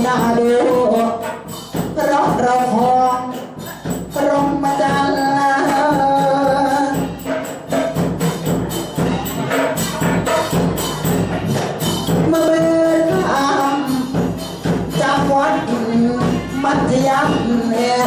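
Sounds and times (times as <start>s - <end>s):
man singing into a microphone: 0.0s - 7.2s, 12.2s - 18.0s
hand percussion: 0.0s - 18.0s.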